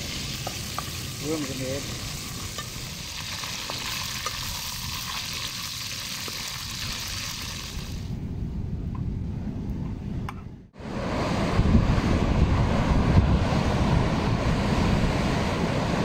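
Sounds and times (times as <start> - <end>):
fish sizzling in hot oil: 0.0 - 8.0.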